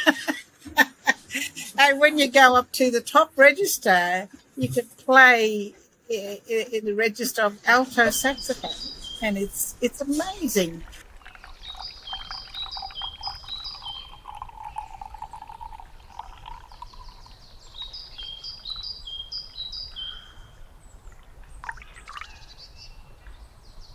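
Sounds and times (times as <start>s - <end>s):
birds singing: 7.3s - 23.9s
liquid pouring into a mug: 10.3s - 18.6s, 21.2s - 22.4s.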